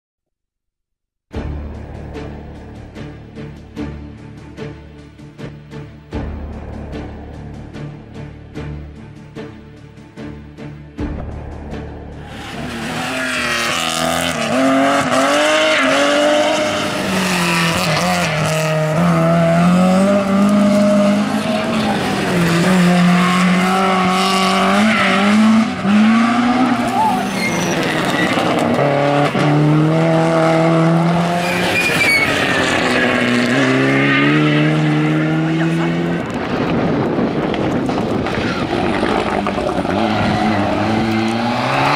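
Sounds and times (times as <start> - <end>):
rally car engines revving: 12.0 - 41.9.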